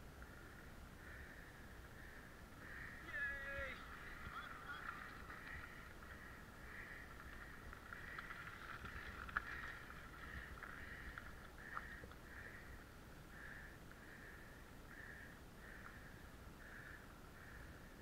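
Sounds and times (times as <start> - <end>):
bike rolling on gravel: 3.0 - 12.7.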